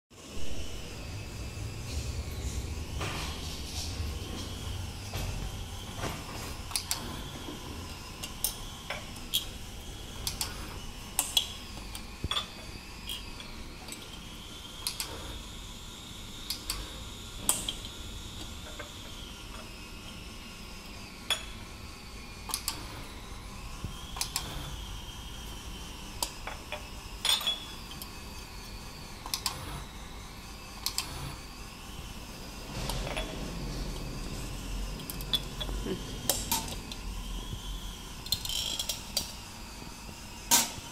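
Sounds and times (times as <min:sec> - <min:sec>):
faint high whine: 0:00.1 - 0:40.9.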